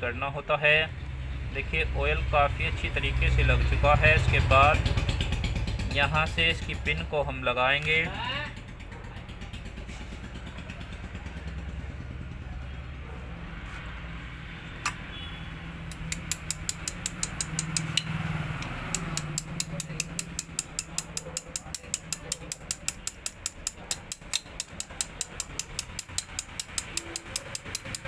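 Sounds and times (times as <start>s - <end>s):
small hammer tapping metal: 15.9s - 28.0s.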